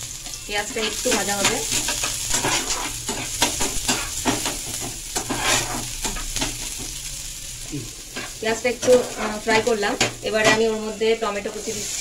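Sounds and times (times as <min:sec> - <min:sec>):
onion sizzling in oil: 0:00.0 - 0:12.0
spatula scraping pan: 0:00.6 - 0:06.8, 0:08.1 - 0:12.0.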